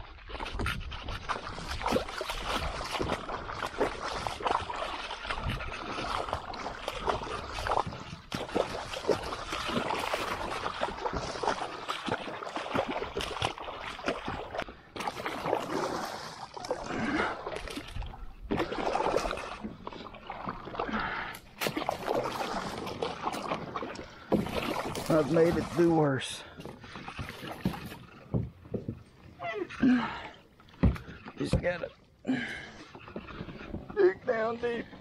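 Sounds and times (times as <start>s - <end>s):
shallow water splashing: 0.0s - 35.0s.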